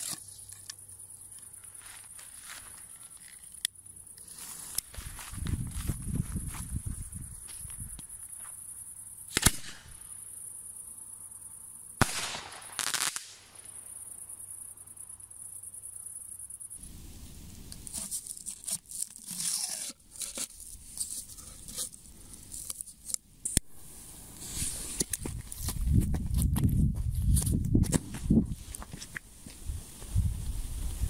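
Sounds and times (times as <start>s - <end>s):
crackling pops: 9.3s - 9.9s, 12.0s - 13.5s
firework hissing: 12.0s - 13.5s, 23.5s - 25.2s.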